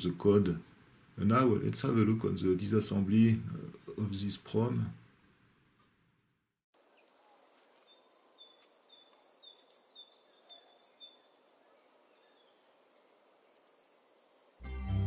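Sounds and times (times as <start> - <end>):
soft hiss: 0.0 - 6.0.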